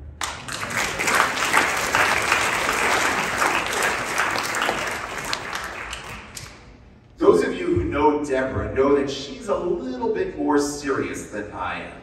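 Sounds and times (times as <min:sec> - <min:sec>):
audience applauding: 0:00.0 - 0:06.8.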